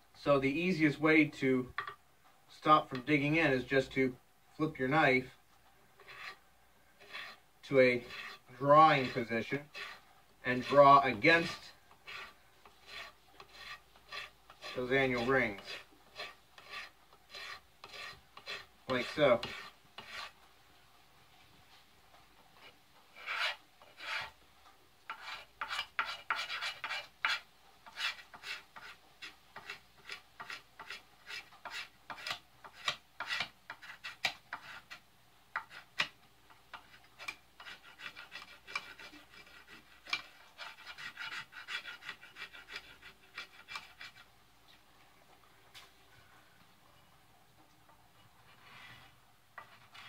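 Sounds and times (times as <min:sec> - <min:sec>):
knife scraping wood: 0:06.0 - 0:06.4, 0:07.0 - 0:20.4, 0:22.6 - 0:24.4, 0:25.1 - 0:44.3, 0:48.5 - 0:50.0.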